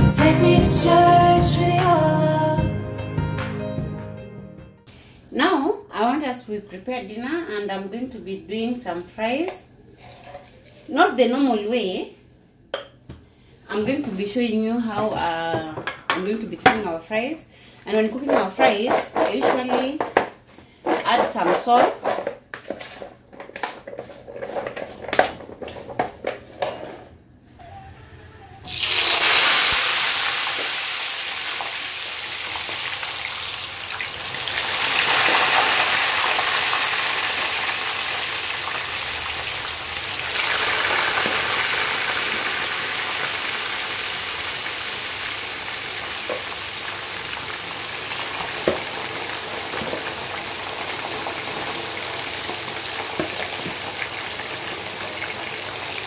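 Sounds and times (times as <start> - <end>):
chips sizzling in hot oil: 28.7 - 56.0.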